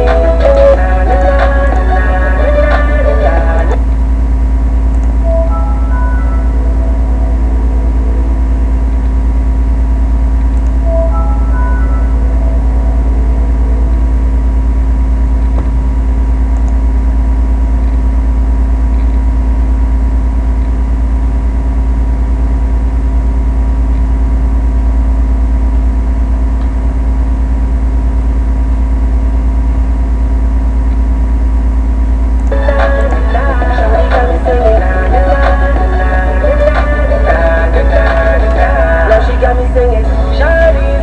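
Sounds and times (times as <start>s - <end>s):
loud steady hum: 0.0s - 41.0s
strong low drone: 0.0s - 41.0s
guitar startup chime: 5.2s - 9.6s, 10.8s - 15.2s.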